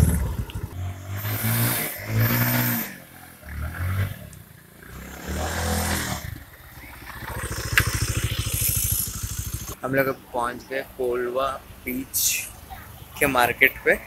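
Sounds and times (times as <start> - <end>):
motorcycle engine revving and idling: 0.0 - 10.0.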